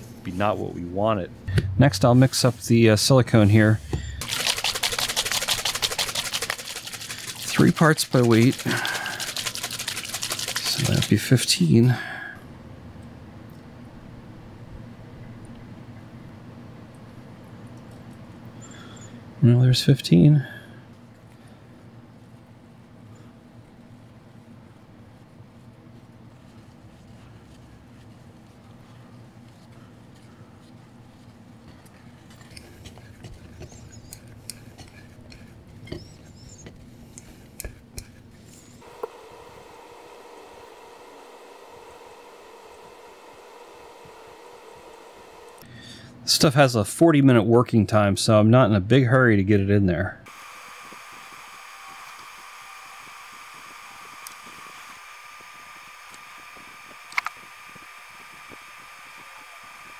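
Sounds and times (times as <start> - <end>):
faint steady whine: 0.0 - 49.0, 49.9 - 59.9
steady low hum: 0.0 - 59.9
stick scraping in a container: 4.2 - 11.2
small clicks: 57.1 - 57.4.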